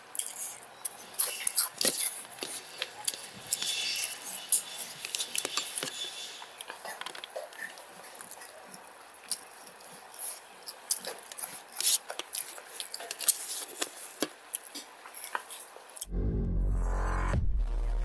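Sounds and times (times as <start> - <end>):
wet chewing and mouth smacks: 6.6 - 16.1.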